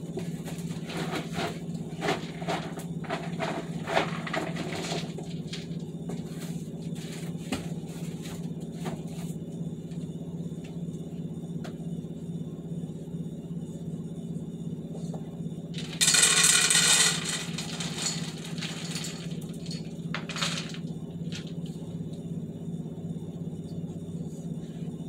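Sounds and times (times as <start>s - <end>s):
steady low hum: 0.0s - 25.0s
dry kibble clattering: 0.7s - 5.8s, 15.8s - 21.6s.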